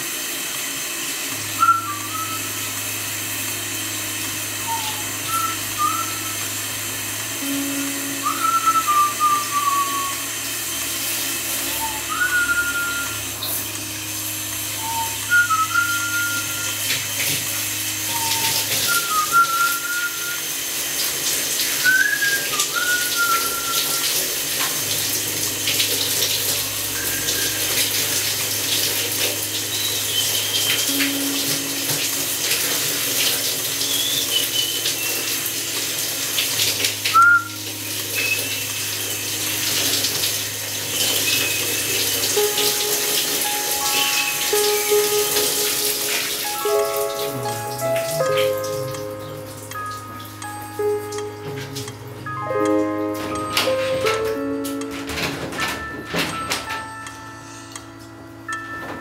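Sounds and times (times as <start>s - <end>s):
running water hissing: 0.0s - 54.8s
person whistling: 1.6s - 2.7s, 4.6s - 6.5s, 7.4s - 10.4s, 11.6s - 13.5s, 14.7s - 16.9s, 18.1s - 20.5s, 21.8s - 24.3s, 26.8s - 28.1s, 33.8s - 35.3s, 37.1s - 37.6s, 38.2s - 38.6s, 43.4s - 45.0s.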